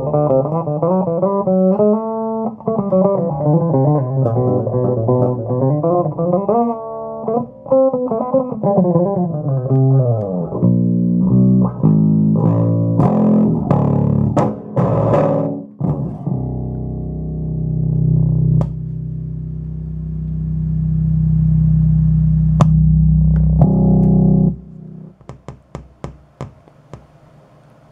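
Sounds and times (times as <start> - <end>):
electric bass notes: 0.0 - 25.3.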